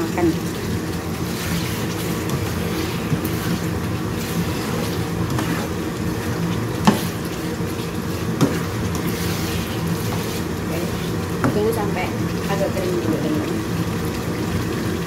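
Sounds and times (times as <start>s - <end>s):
sauce sizzling and bubbling in wok: 0.0s - 15.0s
spatula stirring: 0.4s - 12.9s
spatula knocking pan: 6.8s - 7.2s, 8.3s - 9.1s, 11.4s - 11.8s.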